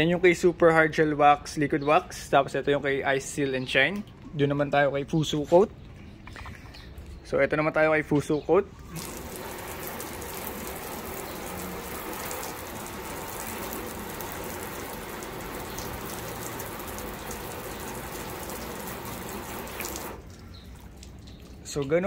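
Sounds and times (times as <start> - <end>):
water spraying from hose: 8.8 - 22.0
water spattering on car hood: 8.9 - 22.0.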